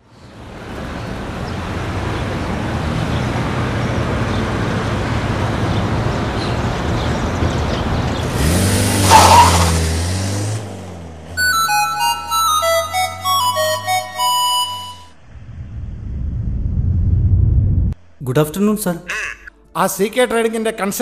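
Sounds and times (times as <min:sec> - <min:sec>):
road traffic hum: 0:00.0 - 0:18.2
vehicle engine passing close: 0:00.5 - 0:13.8, 0:14.7 - 0:18.0.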